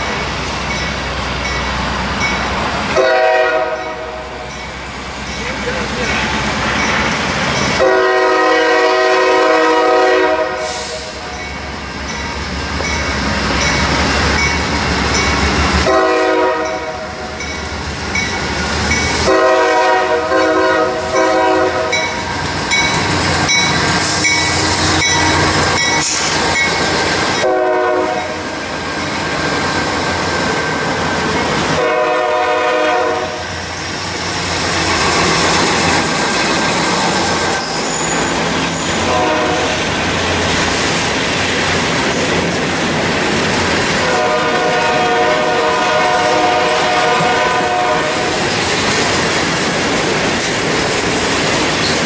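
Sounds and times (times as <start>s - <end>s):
freight train rumbling: 0.0s - 52.0s
locomotive air horn blasts: 2.9s - 4.4s, 7.8s - 11.2s, 15.8s - 17.2s, 19.2s - 22.1s, 27.4s - 28.4s, 31.8s - 33.5s, 39.0s - 39.8s, 44.0s - 48.4s.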